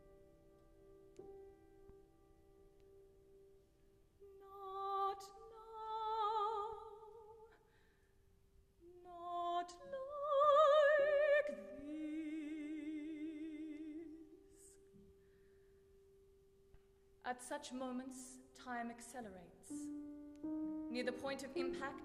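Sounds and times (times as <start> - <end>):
piano accompaniment: 0.0 - 5.9, 19.7 - 22.0
woman singing opera with vibrato: 4.4 - 7.5, 8.8 - 14.7.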